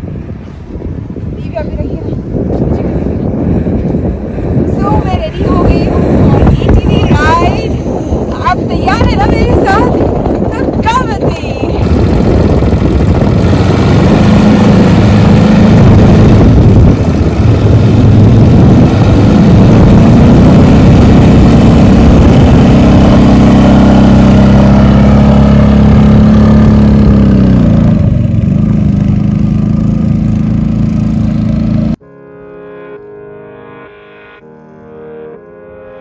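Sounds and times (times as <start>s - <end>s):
quad bike engine running: 8.4s - 32.0s.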